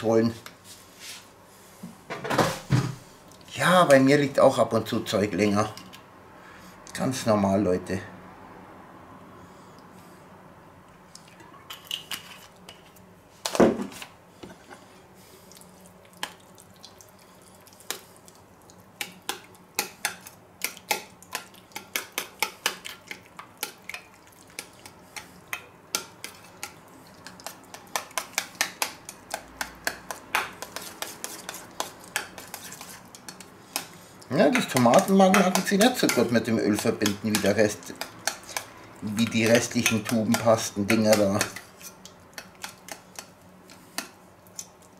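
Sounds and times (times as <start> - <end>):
metal spoon clinking on bowl: 34.5 - 41.6.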